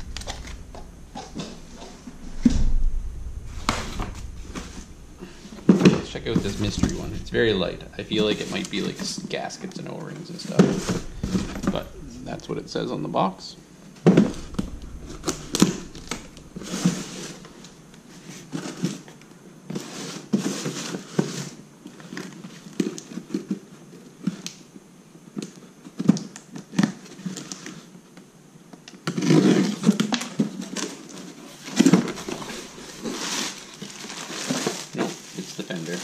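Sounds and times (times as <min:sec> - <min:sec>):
plastic rustling: 0:29.2 - 0:36.0.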